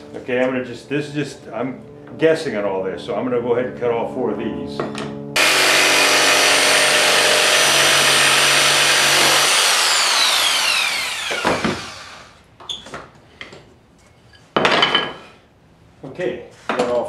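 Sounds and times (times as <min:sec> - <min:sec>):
jigsaw cutting wood: 0:05.4 - 0:12.4
jigsaw motor winding down: 0:05.4 - 0:12.4.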